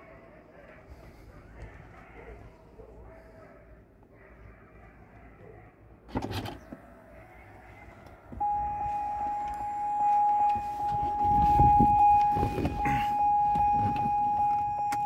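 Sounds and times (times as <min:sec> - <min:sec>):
pulsing door warning chime: 0:08.4 - 0:15.0.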